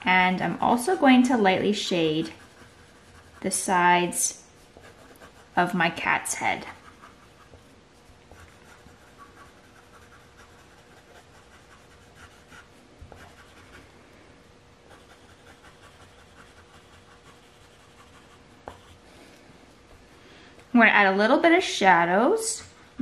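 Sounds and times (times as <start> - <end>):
pencil scratching on paper: 1.8 - 3.6, 4.6 - 5.7, 6.5 - 13.9, 14.9 - 19.0.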